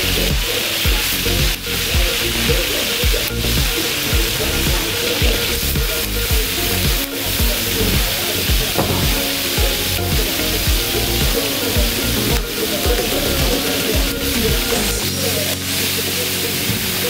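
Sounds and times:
background music with beat: 0.0 - 17.0
food sizzling in pan: 0.0 - 17.0.

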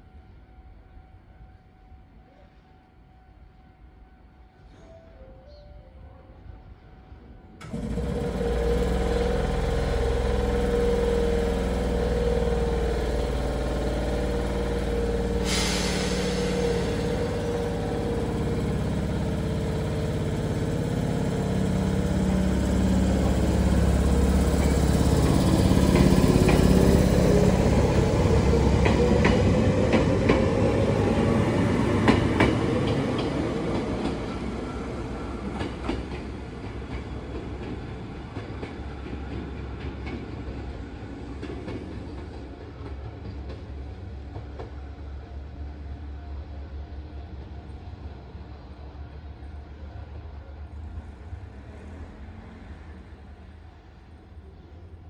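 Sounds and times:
electric train humming: 7.1 - 55.0
train motor whine rising: 7.6 - 35.9
air hiss: 15.2 - 19.1
wheels clacking over rail joints: 16.5 - 30.7.

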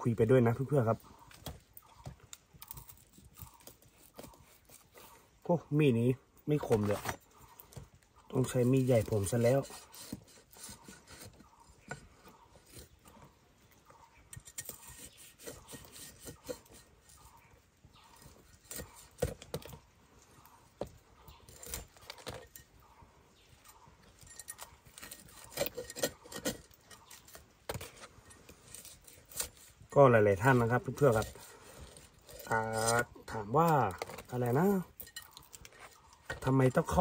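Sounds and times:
knife cutting on wooden board: 14.6 - 17.4.

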